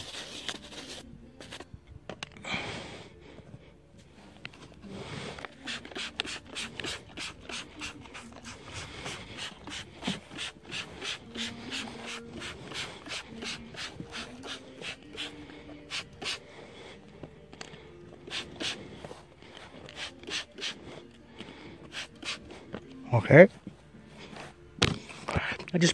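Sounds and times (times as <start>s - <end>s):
spray bottle squirting: 5.4s - 16.4s, 18.2s - 19.0s, 19.8s - 20.8s, 21.8s - 22.5s.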